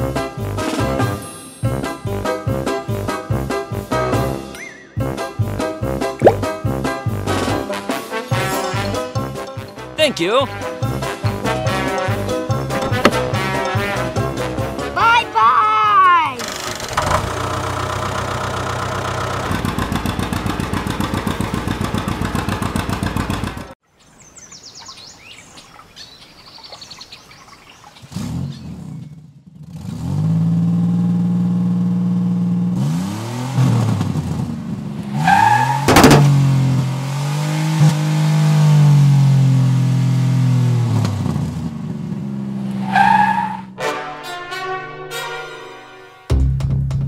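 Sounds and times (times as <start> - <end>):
vehicle engine running: 17.1 - 23.8, 36.0 - 42.8
birds chirping: 23.9 - 29.1
engine revving: 28.0 - 43.7.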